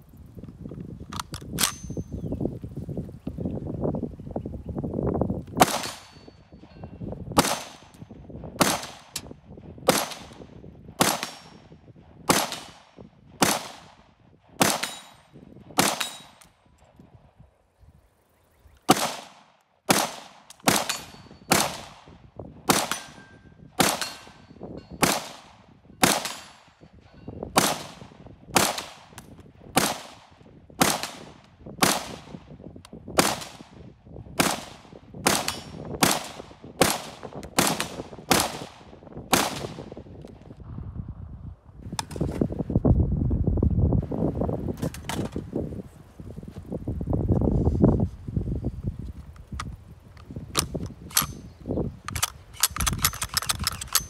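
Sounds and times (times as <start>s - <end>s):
rifle shots with echo: 5.6s - 6.6s, 7.4s - 16.4s, 18.9s - 26.9s, 27.5s - 29.2s, 29.8s - 32.5s, 33.2s - 40.1s.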